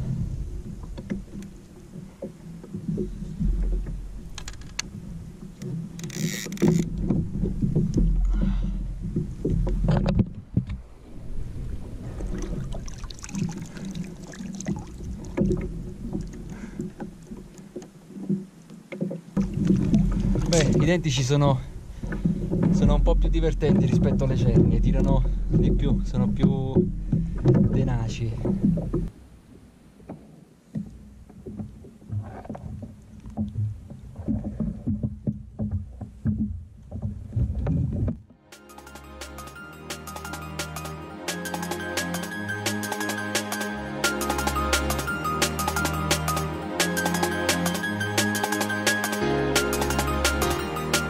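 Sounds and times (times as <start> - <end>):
knocks and clatter on plastic kayak: 0.0 - 11.0, 14.2 - 21.3, 21.9 - 29.2, 30.0 - 38.4
water slapping hull: 0.0 - 38.4
low rumble: 6.7 - 13.8, 19.4 - 29.7
background music: 38.4 - 51.0.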